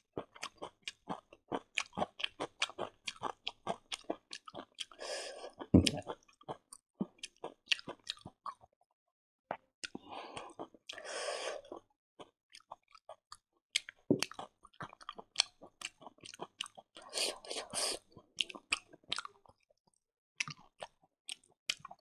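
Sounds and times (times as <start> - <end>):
wet chewing mouth clicks: 13.8 - 19.5, 20.4 - 22.0.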